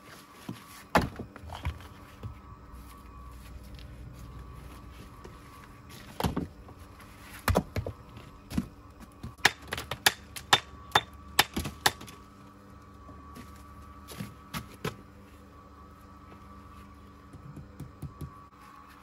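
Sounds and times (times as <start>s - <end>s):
hand tool striking stone: 9.3s - 12.1s.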